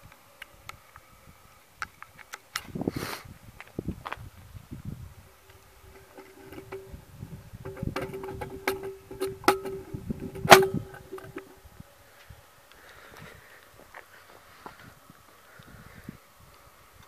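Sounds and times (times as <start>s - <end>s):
steady hum: 4.4s - 12.7s.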